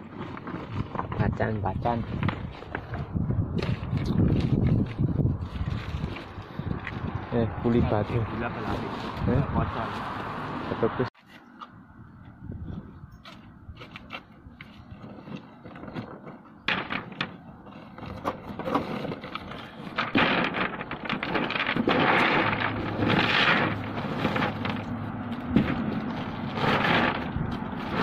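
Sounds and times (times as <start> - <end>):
cardboard rustling and crackling: 0.0 - 7.0, 13.2 - 28.0.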